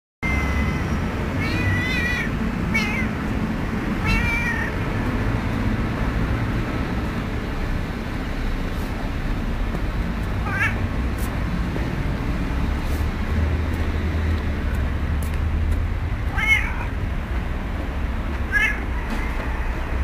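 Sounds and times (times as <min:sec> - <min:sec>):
cat meowing: 0:00.2 - 0:03.3, 0:04.0 - 0:04.8, 0:10.4 - 0:10.8, 0:16.3 - 0:17.0, 0:18.4 - 0:18.9.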